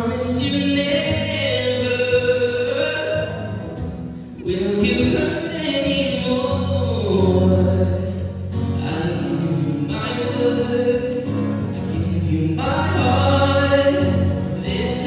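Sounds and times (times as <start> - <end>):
acoustic guitar: 0.0 - 15.0
men singing: 11.9 - 15.0.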